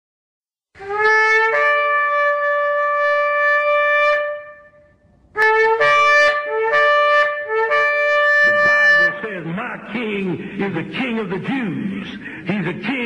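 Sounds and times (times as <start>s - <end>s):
horn blasts rising in pitch: 5.4s - 9.3s.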